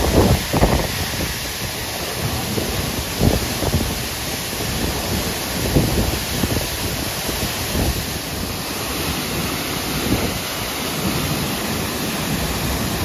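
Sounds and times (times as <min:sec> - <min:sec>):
waterfall rushing: 0:00.0 - 0:13.0
wind buffeting microphone: 0:00.0 - 0:13.0.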